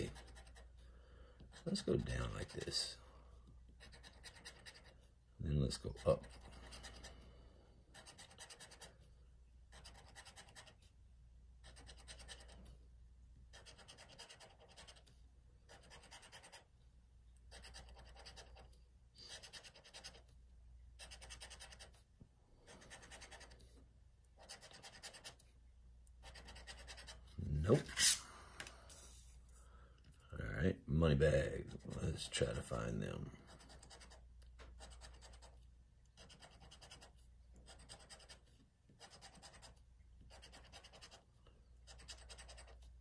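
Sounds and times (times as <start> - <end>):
scratching lottery ticket: 0.0 - 0.8, 1.4 - 3.0, 3.7 - 7.2, 7.9 - 9.1, 9.7 - 10.9, 11.6 - 12.8, 13.4 - 16.7, 17.4 - 20.3, 21.0 - 22.0, 22.7 - 23.8, 24.4 - 25.5, 26.2 - 28.2, 31.7 - 43.0.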